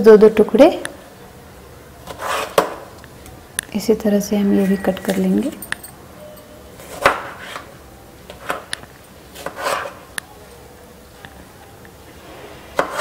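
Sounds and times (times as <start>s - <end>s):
knife slicing tomato: 2.0s - 2.8s, 9.4s - 10.0s.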